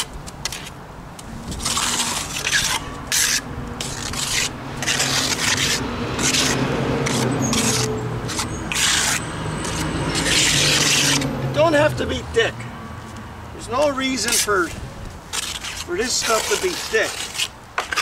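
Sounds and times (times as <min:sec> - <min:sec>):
trowel scraping plaster on wall: 0:01.5 - 0:11.8, 0:14.1 - 0:18.0.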